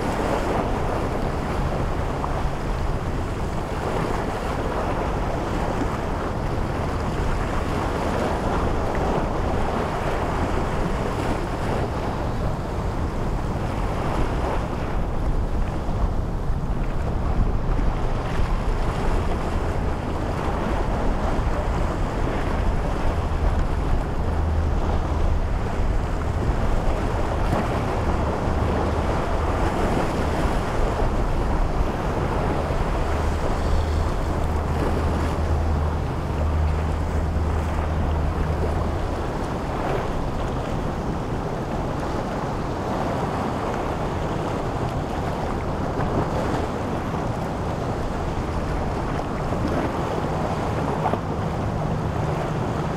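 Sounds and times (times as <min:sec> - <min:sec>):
motorboat engine drone: 0:00.0 - 0:52.9
waves washing: 0:00.0 - 0:52.9
wind on microphone: 0:00.0 - 0:52.9.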